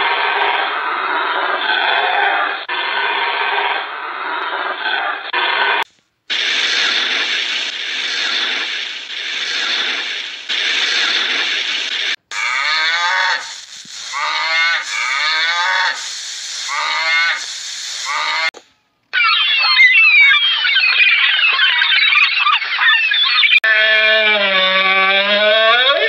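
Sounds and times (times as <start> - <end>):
steady rushing noise: 6.3 - 12.3.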